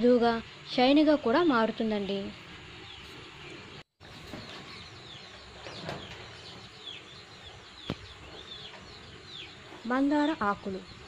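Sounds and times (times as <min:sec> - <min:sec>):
birds chirping: 0:00.3 - 0:11.0.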